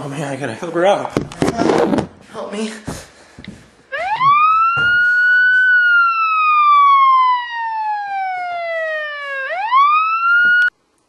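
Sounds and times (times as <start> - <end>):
police siren wailing: 3.9 - 10.7.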